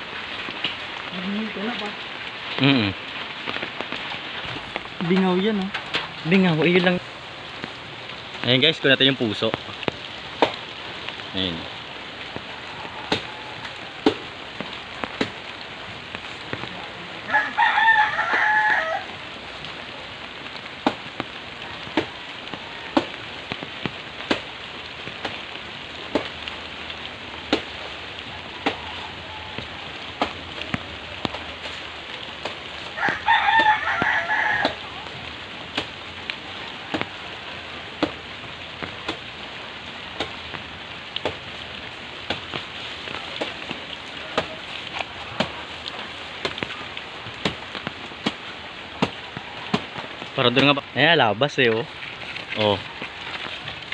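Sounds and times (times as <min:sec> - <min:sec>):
drips striking leaves: 0:00.0 - 0:53.9
steady rain: 0:00.0 - 0:53.9
rooster crowing: 0:12.5 - 0:14.0, 0:17.2 - 0:19.2, 0:28.4 - 0:30.0, 0:32.9 - 0:35.0.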